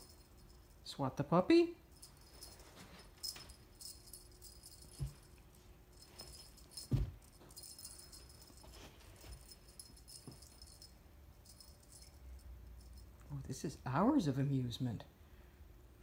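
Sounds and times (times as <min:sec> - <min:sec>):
light metallic jingling: 0:00.0 - 0:01.0, 0:01.8 - 0:13.8
dull thumps: 0:06.2 - 0:08.7.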